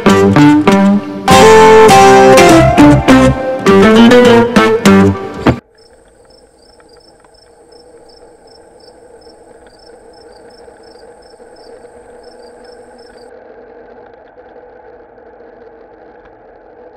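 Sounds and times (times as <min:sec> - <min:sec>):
guitar music: 0:00.0 - 0:05.6
quiet city traffic: 0:05.6 - 0:13.3
regular high chirps: 0:05.8 - 0:13.3.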